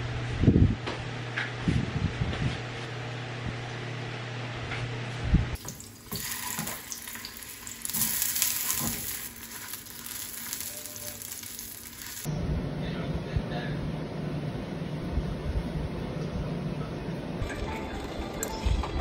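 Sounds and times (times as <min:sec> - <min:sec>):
electric fan humming: 0:00.0 - 0:19.0
hot dogs sizzling in oil: 0:05.6 - 0:12.3.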